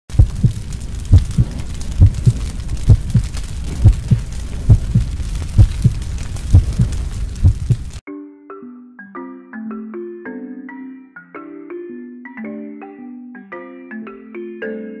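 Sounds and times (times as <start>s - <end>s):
heartbeat thumps: 0.1s - 8.0s
low rumbling hiss: 0.1s - 8.0s.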